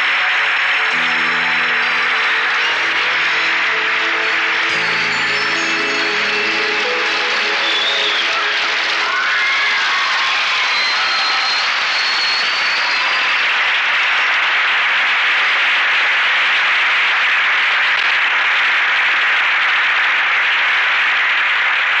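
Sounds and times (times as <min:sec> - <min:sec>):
faint high cheers: 0:00.0 - 0:16.0
audience clapping: 0:00.0 - 0:22.0.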